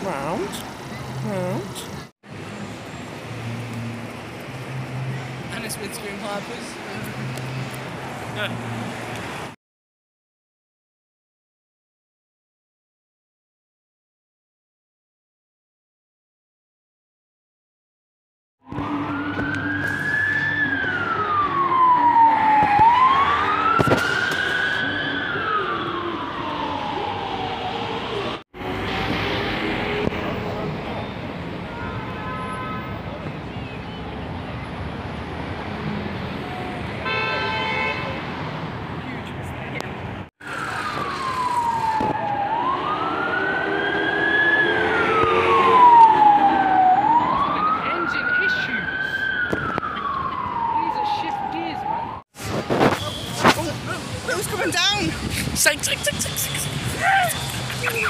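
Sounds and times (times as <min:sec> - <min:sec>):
traffic noise: 0:00.0 - 0:09.6, 0:18.6 - 0:58.0
police siren wailing: 0:18.6 - 0:31.0, 0:40.4 - 0:52.2.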